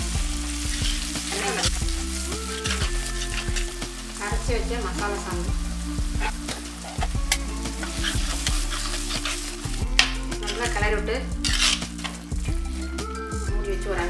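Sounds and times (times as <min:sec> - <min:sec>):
paste sizzling in oil: 0:00.0 - 0:14.0
spatula scraping a pot: 0:00.7 - 0:03.8, 0:06.0 - 0:12.3.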